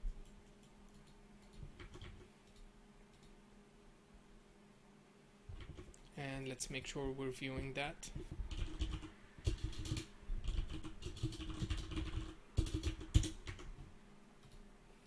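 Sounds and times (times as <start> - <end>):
typing on computer keyboard: 0.2 - 3.3, 5.5 - 6.0, 8.2 - 14.6.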